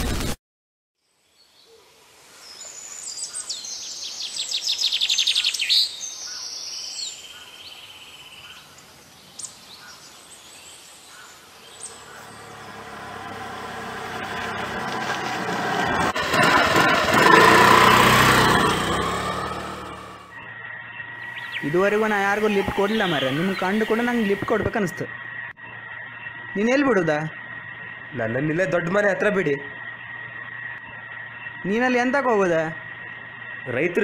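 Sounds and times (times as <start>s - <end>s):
birds chirping: 2.4s - 34.0s
humming drone: 11.7s - 21.5s
bird trill: 16.4s - 34.0s.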